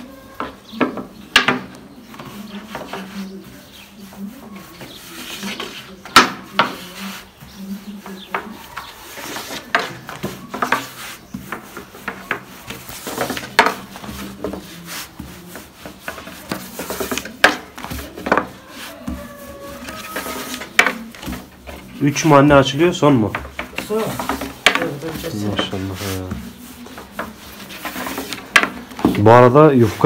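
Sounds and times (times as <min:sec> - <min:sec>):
rolling pin rolling over dough: 0:00.0 - 0:30.0
sharp wooden knocks: 0:00.4 - 0:01.8, 0:06.1 - 0:06.8, 0:09.4 - 0:14.6, 0:16.0 - 0:21.8, 0:22.4 - 0:25.7, 0:28.1 - 0:29.5.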